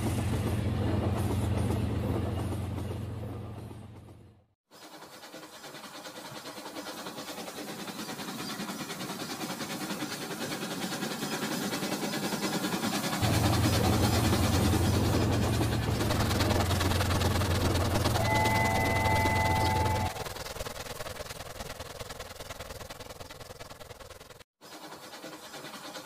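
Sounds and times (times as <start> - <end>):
toy train motors whirring: 4.7 - 13.3.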